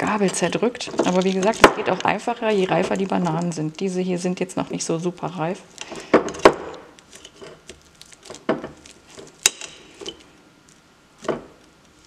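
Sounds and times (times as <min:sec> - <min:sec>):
bananas squishing: 0:05.6 - 0:12.0.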